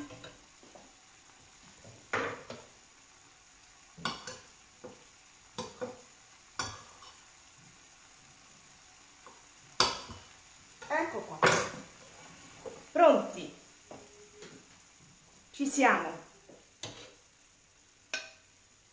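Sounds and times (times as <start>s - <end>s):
kitchen background noise: 0.0s - 18.9s.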